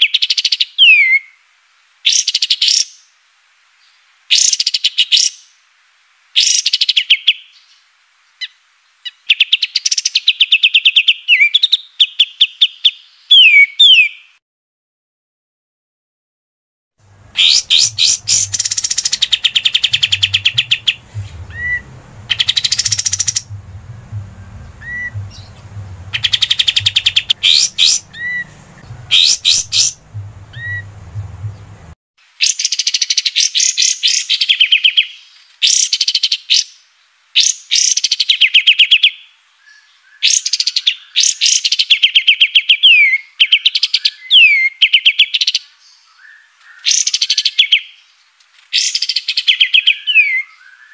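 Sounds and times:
faint low hum: 0:17.0 - 0:32.0
songbird trilling: 0:17.2 - 0:31.8
single whistled bird notes: 0:17.4 - 0:23.6, 0:24.4 - 0:30.9.

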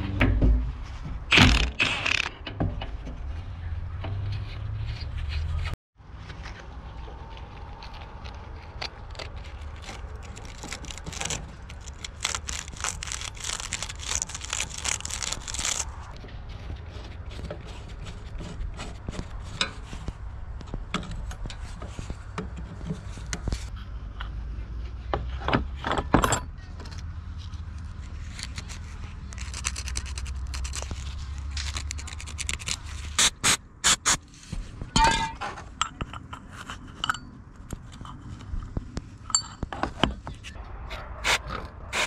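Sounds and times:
low hum: 0:00.0 - 0:01.6.

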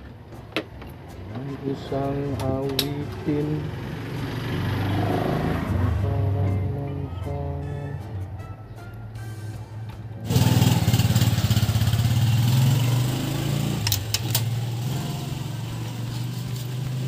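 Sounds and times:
background music: 0:00.0 - 0:17.0
small engine throbbing: 0:10.2 - 0:17.0.

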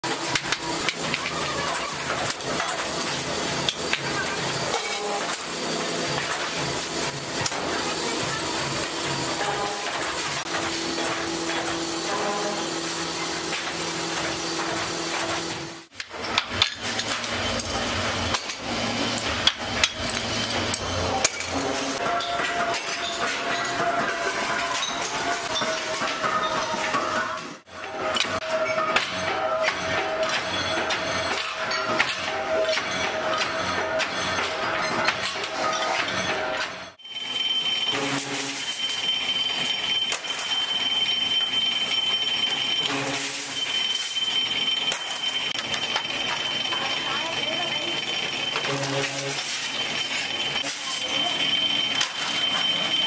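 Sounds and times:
machine running noise: 0:00.0 - 0:53.0
high-pitched metal cutting squeal: 0:00.7 - 0:15.9, 0:16.9 - 0:53.0.

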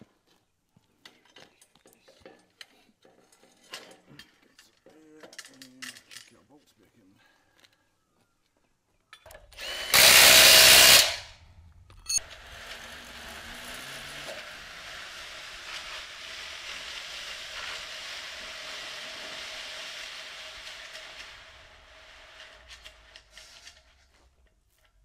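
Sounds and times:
power tool burst: 0:09.6 - 0:11.4.

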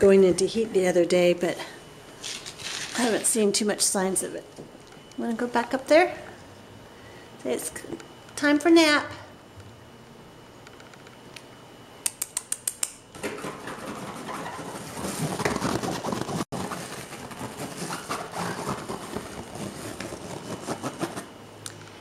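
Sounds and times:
fabric rustling and claws scratching: 0:13.9 - 0:21.3.

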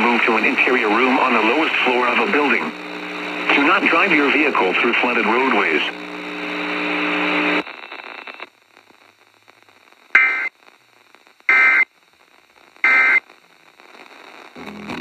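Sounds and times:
steady low hum: 0:00.0 - 0:07.6
radio hiss: 0:00.0 - 0:15.0.

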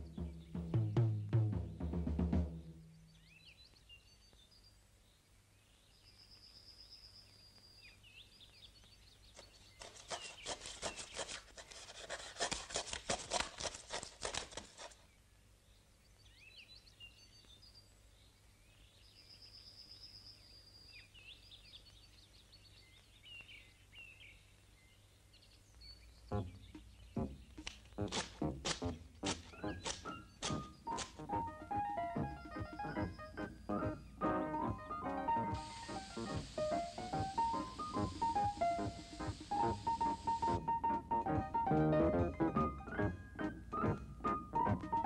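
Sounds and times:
small birds chirping: 0:00.0 - 0:01.4, 0:02.7 - 0:11.8, 0:14.2 - 0:41.8
rapid sharp clicks: 0:27.5 - 0:31.4.

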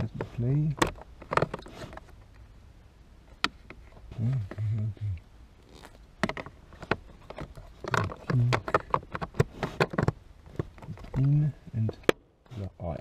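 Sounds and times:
hard plastic clicking and knocking: 0:00.7 - 0:01.6, 0:06.2 - 0:12.2.

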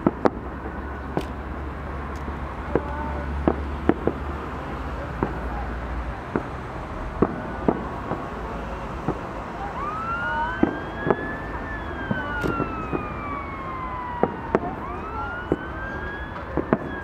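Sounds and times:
emergency vehicle siren wailing: 0:00.0 - 0:17.0
fireworks bangs: 0:00.0 - 0:17.0.

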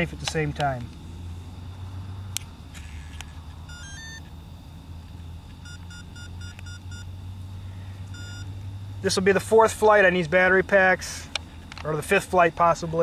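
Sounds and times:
steady low hum: 0:00.0 - 0:13.0
electronic start-up beeps: 0:02.8 - 0:04.3, 0:05.6 - 0:07.1, 0:08.1 - 0:08.5.

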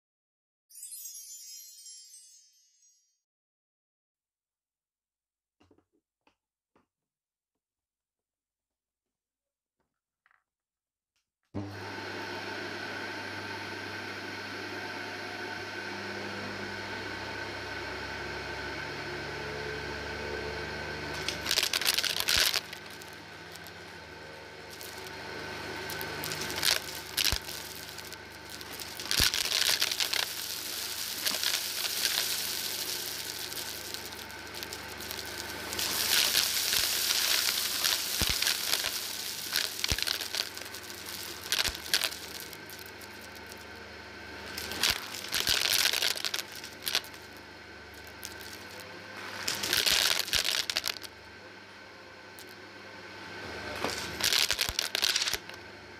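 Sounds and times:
vacuum cleaner motor hum: 0:11.6 - 0:55.9
crackling of granules sucked up: 0:21.1 - 0:43.7, 0:44.4 - 0:51.1, 0:53.8 - 0:55.6.

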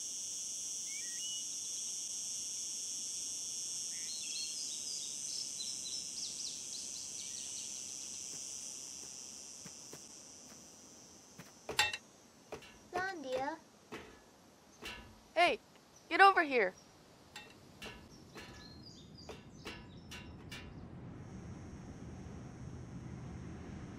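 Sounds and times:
high-pitched insect drone: 0:00.0 - 0:14.2
bird chirps: 0:15.8 - 0:20.5.

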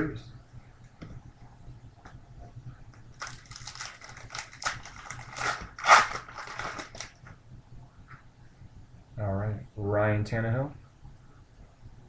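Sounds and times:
foil wrapper crinkling and tearing: 0:03.2 - 0:07.2.

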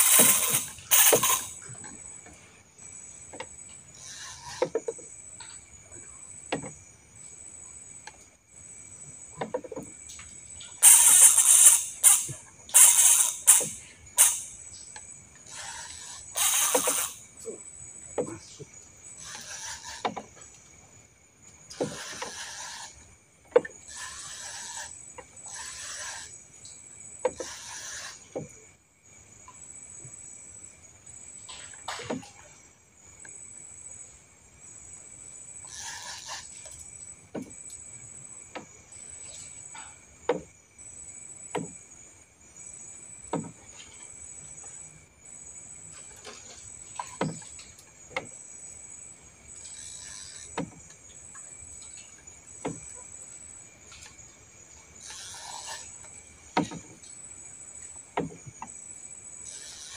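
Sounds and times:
fishing reel clicking: 0:00.0 - 0:01.6, 0:10.8 - 0:14.5, 0:16.0 - 0:17.2
night insects chirring: 0:00.0 - 0:59.9.

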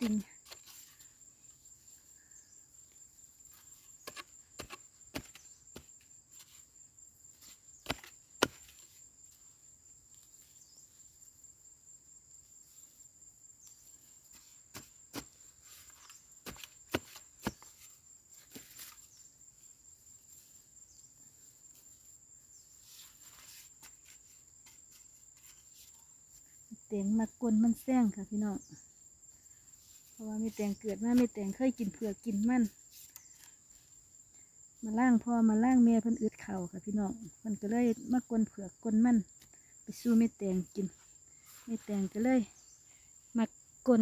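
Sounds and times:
high insect trill: 0:00.0 - 0:44.0
digging tool striking dry soil: 0:04.0 - 0:05.9, 0:07.8 - 0:08.8, 0:14.7 - 0:17.8.

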